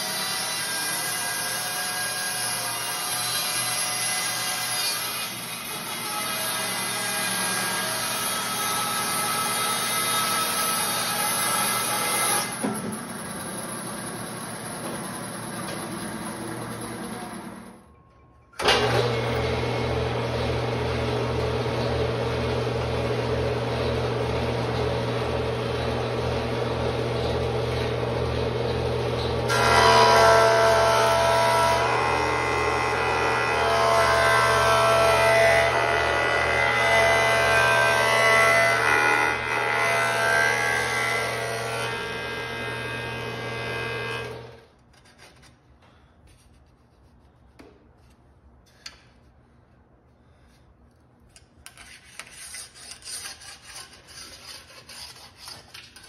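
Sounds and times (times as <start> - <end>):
board planing on jointer: 0.0 - 13.4, 18.6 - 44.6
bandsaw cutting wood: 0.0 - 13.5, 29.0 - 44.6.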